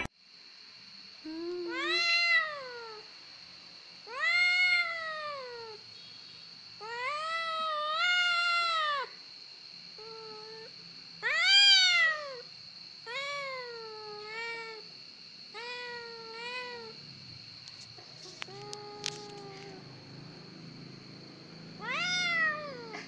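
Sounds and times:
faint high-pitched whine: 0.0s - 23.0s
young cat meowing: 1.3s - 3.0s, 4.1s - 5.8s, 6.8s - 9.1s, 10.0s - 12.4s, 13.1s - 14.8s, 15.5s - 17.0s, 18.2s - 19.8s, 21.8s - 23.0s.

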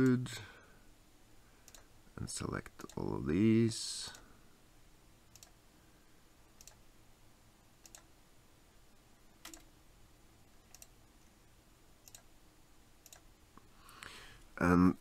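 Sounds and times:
computer mouse clicking: 1.7s - 1.9s, 5.3s - 5.6s, 6.6s - 6.8s, 7.8s - 8.1s, 9.4s - 9.7s, 10.7s - 11.0s, 12.0s - 12.3s, 13.0s - 13.3s.

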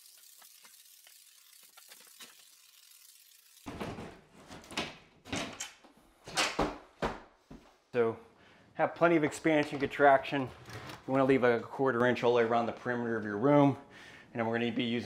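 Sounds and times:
foam gun hissing and crackling: 0.0s - 3.7s.

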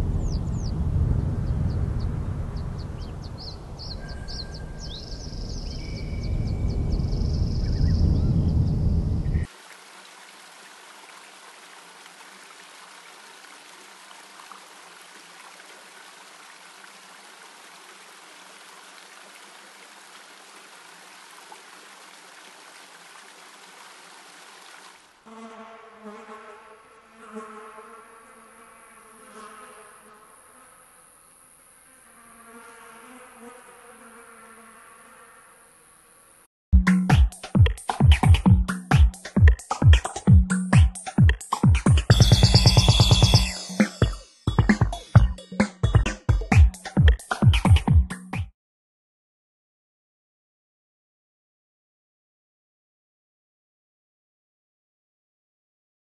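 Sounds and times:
flying insect buzzing: 25.2s - 36.5s.

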